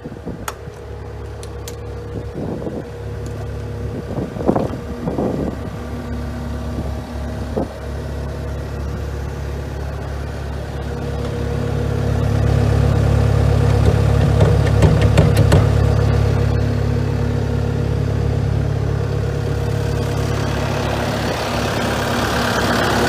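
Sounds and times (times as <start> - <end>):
diesel engine idling: 0.0 - 23.0
knocks: 13.7 - 15.8.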